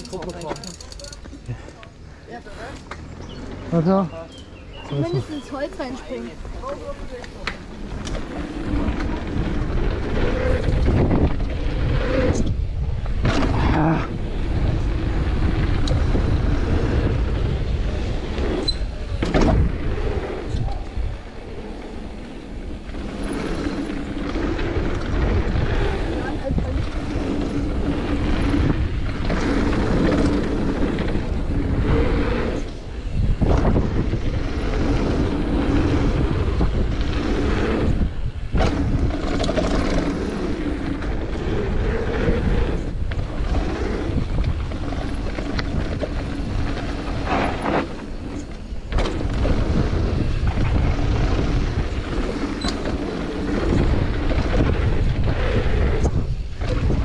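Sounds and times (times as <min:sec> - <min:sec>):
bike rattling over bumps: 0:00.0 - 0:57.0
tyres rolling and skidding on dirt: 0:00.0 - 0:57.0
wind buffeting microphone: 0:03.2 - 0:57.0.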